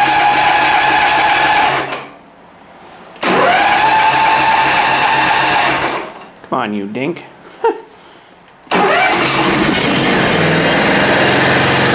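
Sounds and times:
electric starter cranking small engine: 0.0 - 2.1, 3.2 - 6.2, 8.7 - 11.9.

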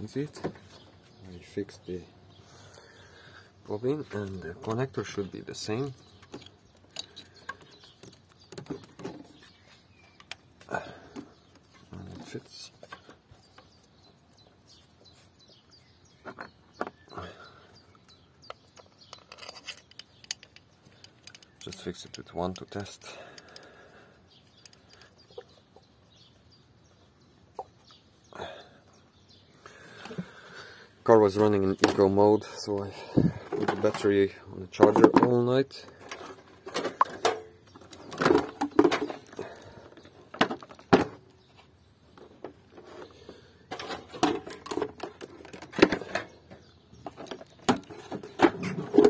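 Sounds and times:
plastic clicks and scraping: 18.1 - 23.7, 43.7 - 49.0.

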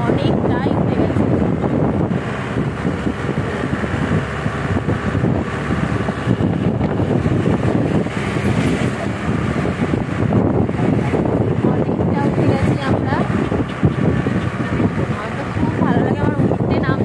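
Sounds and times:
car engine and road noise: 0.0 - 17.0.

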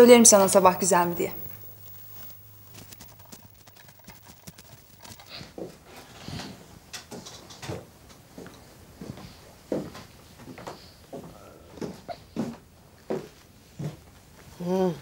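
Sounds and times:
soft rustles: 1.4 - 7.4.

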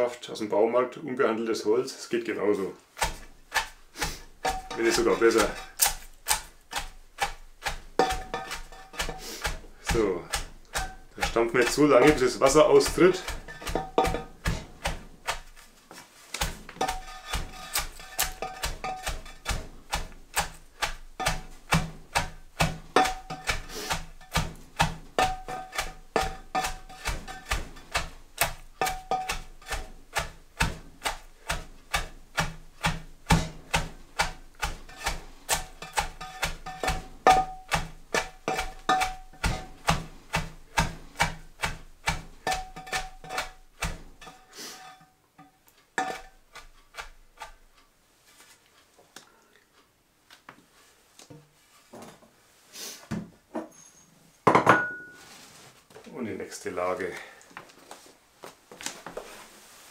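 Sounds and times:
wooden batten thudding cabbage: 2.8 - 44.7, 46.0 - 47.7.

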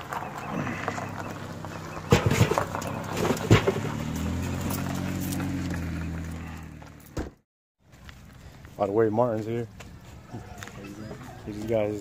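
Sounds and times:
gear knocking and thumping: 2.0 - 5.9.

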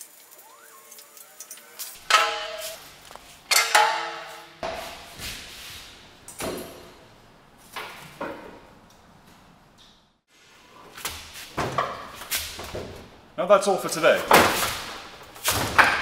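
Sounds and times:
metal clanks on concrete: 2.0 - 2.8.

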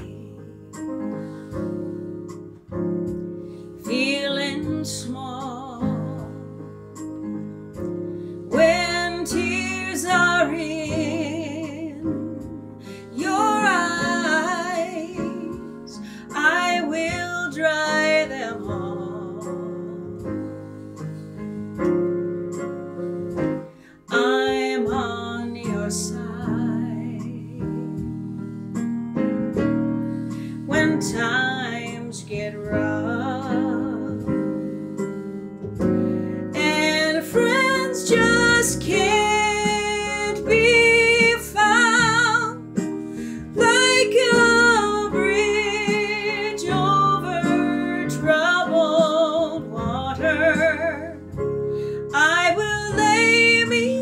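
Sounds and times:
electric keyboard: 0.0 - 54.0
woman singing with vibrato: 3.9 - 6.4, 8.5 - 20.1, 24.1 - 27.8, 30.7 - 34.2, 36.6 - 42.6, 43.5 - 51.2, 52.1 - 54.0.

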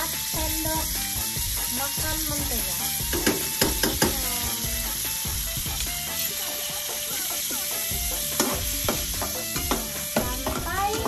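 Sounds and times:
butter sizzling in a wok: 0.0 - 11.0
spatula scraping a pan: 6.2 - 11.0.

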